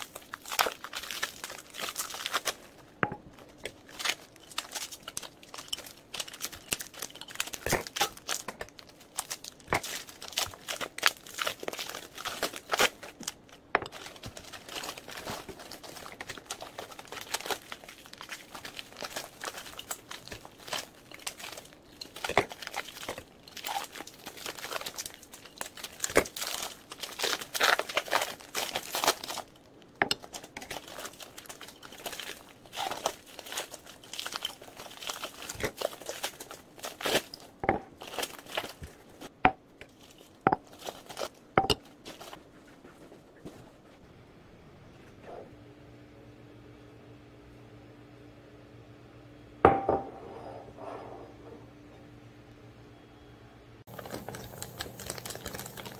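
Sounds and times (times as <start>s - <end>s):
plastic packaging crinkling: 0.0s - 42.7s, 53.9s - 55.9s
glass jars knocking: 49.7s - 50.2s.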